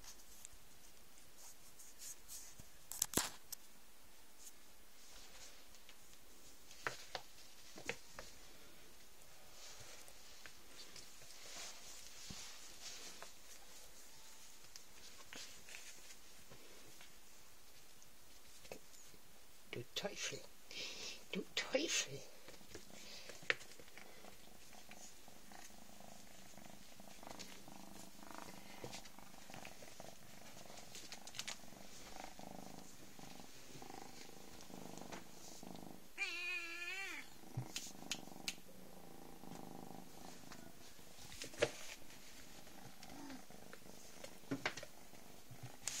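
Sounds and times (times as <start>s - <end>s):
kittens purring: 4.6s - 46.0s
kitten meowing: 36.2s - 37.3s.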